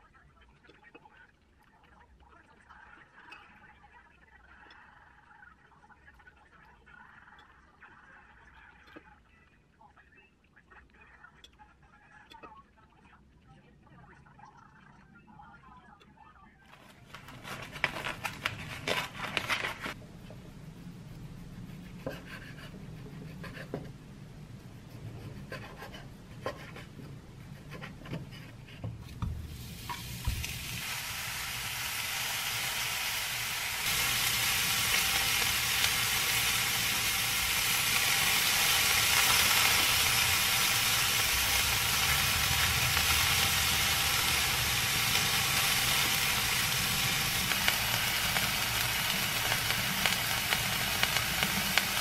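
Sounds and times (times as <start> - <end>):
meat sizzling in frying pan: 29.4 - 52.0.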